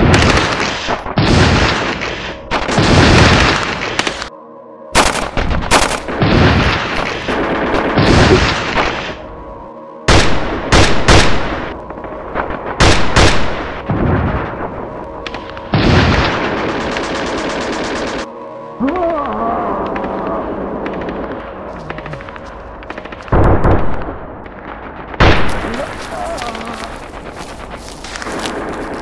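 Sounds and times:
single rifle shots: 5.0 - 9.2.

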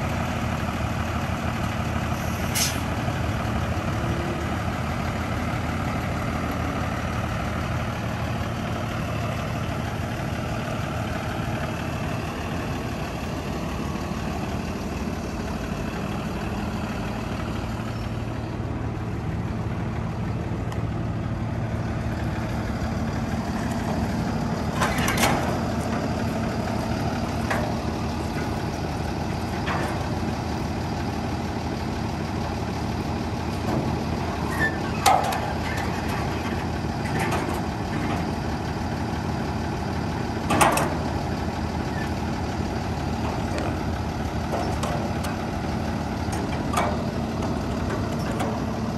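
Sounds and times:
diesel truck engine idling: 0.0 - 48.9.

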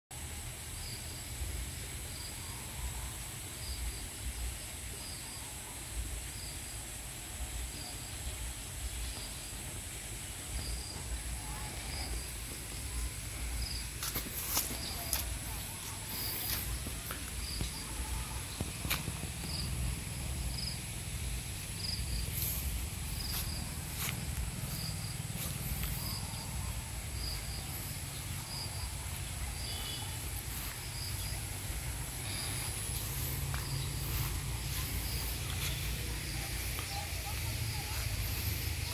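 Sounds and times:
insects buzzing: 0.2 - 38.9
steady low rumble: 8.8 - 38.9.

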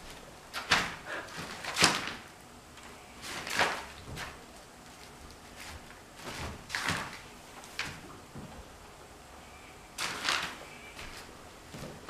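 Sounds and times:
wooden bed frame scrapes and knocks: 3.2 - 8.7.

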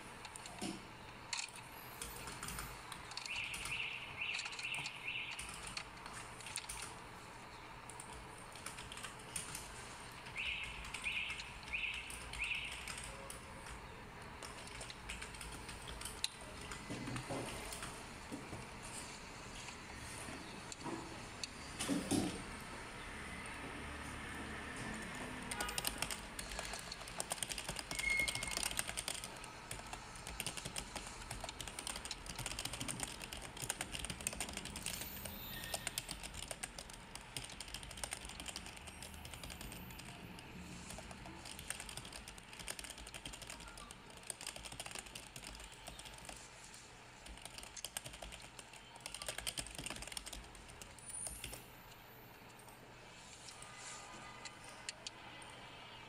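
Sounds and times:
plastic parts clicking and rattling: 0.0 - 7.0.

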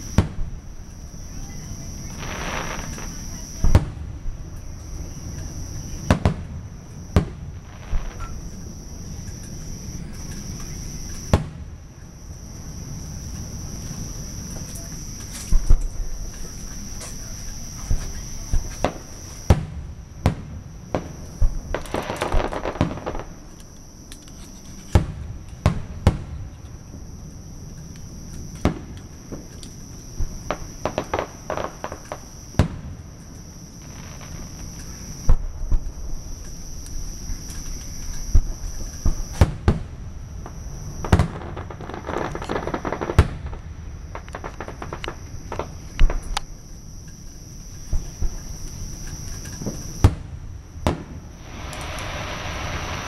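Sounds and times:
fireworks bangs: 0.0 - 11.8, 12.9 - 23.6, 30.2 - 33.0, 33.8 - 36.3, 38.3 - 46.4, 49.6 - 53.0
high insect drone: 0.0 - 25.7, 26.4 - 53.0
fireworks crackling: 0.0 - 26.8, 27.9 - 46.7, 47.4 - 53.0
crickets chirping: 0.0 - 53.0
small cracks: 44.1 - 46.5.

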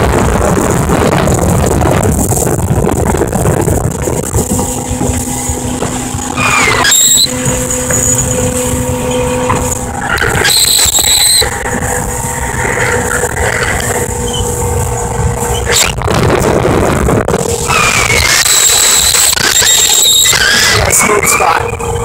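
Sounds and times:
outboard motor running: 0.0 - 22.0
rushing water: 0.0 - 22.0
rushing wind: 0.0 - 22.0
brief high squeal: 6.4 - 8.4, 10.2 - 11.5, 17.7 - 21.8.

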